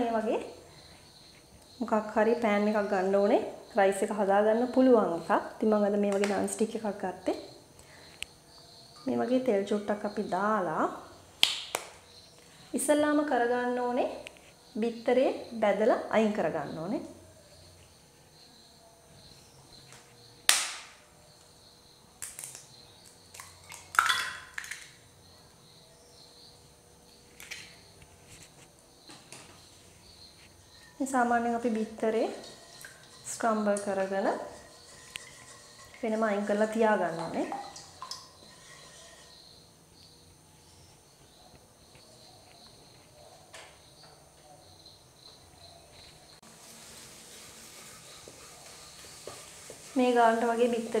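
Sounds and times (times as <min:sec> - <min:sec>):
egg crackling in hot oil: 0:22.2 - 0:25.0, 0:31.7 - 0:39.4, 0:46.4 - 0:51.0.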